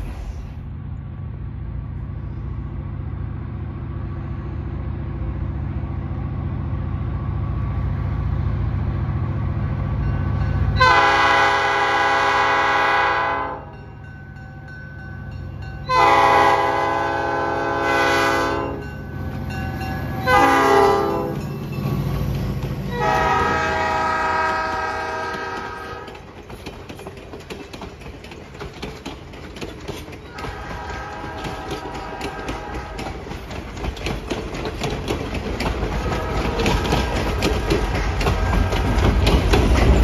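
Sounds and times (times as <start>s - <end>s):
diesel locomotive engine rumble: 0.0s - 40.0s
locomotive air horn blasts: 10.8s - 13.7s, 15.9s - 18.9s, 20.2s - 21.4s, 22.9s - 26.2s, 30.3s - 33.0s, 36.0s - 37.9s.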